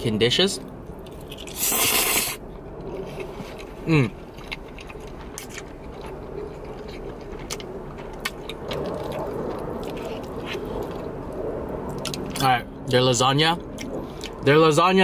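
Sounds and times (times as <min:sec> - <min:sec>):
slurping noodles: 0:01.5 - 0:02.4
quiet chewing: 0:02.8 - 0:12.4.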